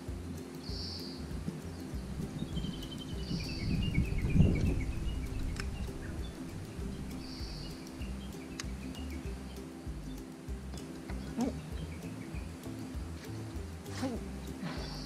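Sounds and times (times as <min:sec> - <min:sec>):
background music: 0:00.0 - 0:15.0
birds chirping: 0:00.0 - 0:15.0.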